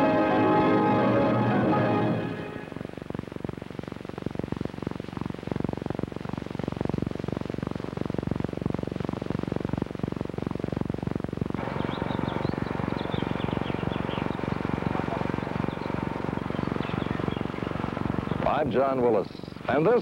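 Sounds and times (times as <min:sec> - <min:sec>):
crackling film soundtrack rumble: 0:00.0 - 0:20.0
high bird chirps: 0:11.8 - 0:14.5, 0:15.7 - 0:18.4.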